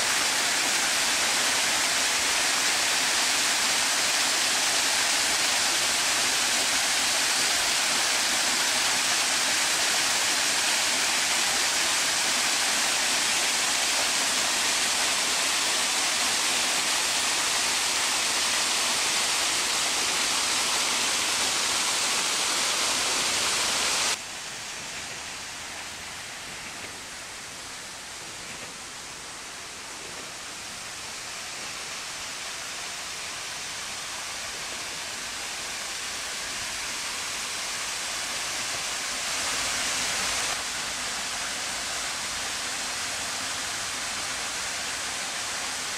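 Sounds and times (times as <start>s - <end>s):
water rushing down rock cascade: 0.0s - 45.9s.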